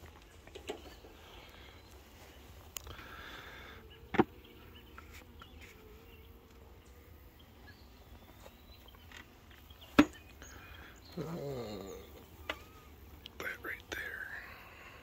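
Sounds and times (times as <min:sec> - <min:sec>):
hive covers clicking: 0:00.0 - 0:02.0
honeybees buzzing: 0:00.0 - 0:15.0.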